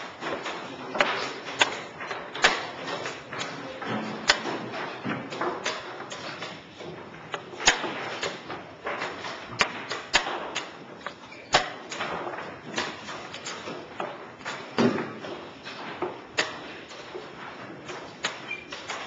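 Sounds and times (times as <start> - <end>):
chess pieces knocking on board: 0.1 - 19.0.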